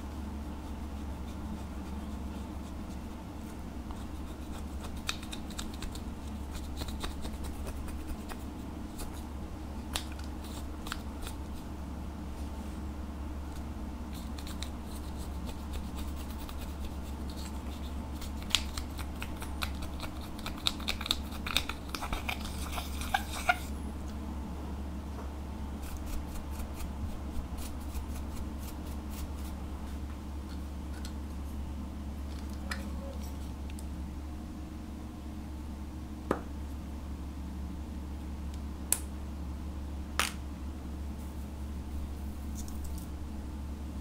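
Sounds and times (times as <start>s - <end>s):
spatula scratching powder: 0.1s - 9.3s, 14.1s - 23.8s, 25.8s - 29.6s.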